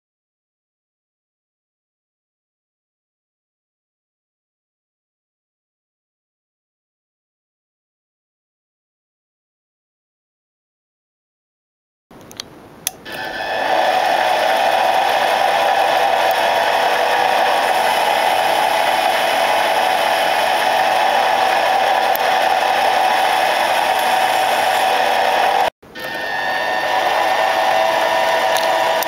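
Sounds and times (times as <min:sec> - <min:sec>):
lathe motor whining: 0:13.1 - 0:29.0.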